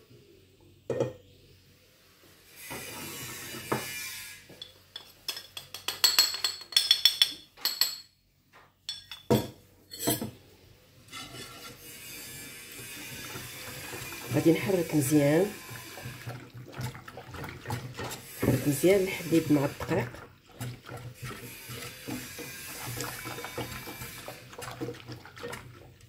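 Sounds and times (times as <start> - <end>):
utensils clinking against pan: 4.5 - 8.1, 8.9 - 10.4.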